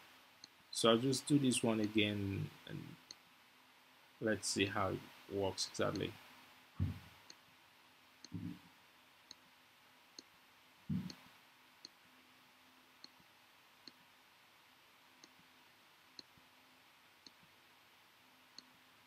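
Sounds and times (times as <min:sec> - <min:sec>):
low thumps: 0:06.8 - 0:07.1, 0:08.3 - 0:08.6, 0:10.9 - 0:11.2.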